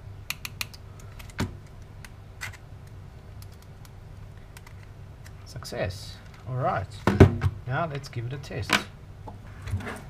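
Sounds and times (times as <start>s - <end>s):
test probes clicking on metal: 0.3s - 2.2s.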